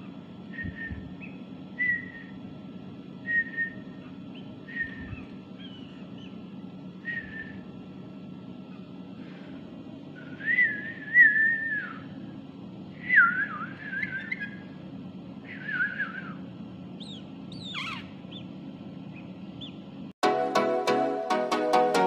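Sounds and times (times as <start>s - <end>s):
warbling whistles: 0.5s - 2.4s, 3.2s - 4.0s, 4.6s - 5.9s, 7.0s - 7.7s, 10.2s - 12.1s, 13.0s - 14.8s, 15.4s - 16.4s
sharp falling whistles: 10.3s - 12.0s
music: 20.2s - 22.0s.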